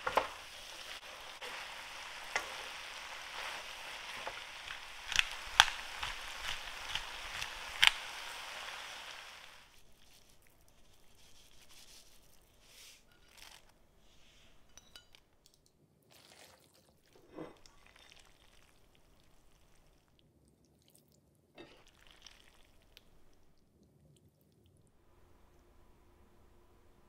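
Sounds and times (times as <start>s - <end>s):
metal tongs tossing noodles in pan: 0.0s - 9.2s.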